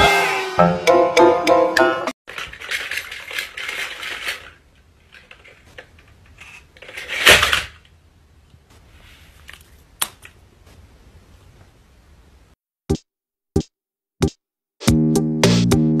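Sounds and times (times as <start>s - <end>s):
hard plastic rattling: 2.3s - 7.9s
plastic toy clattering onto floor: 2.3s - 7.9s.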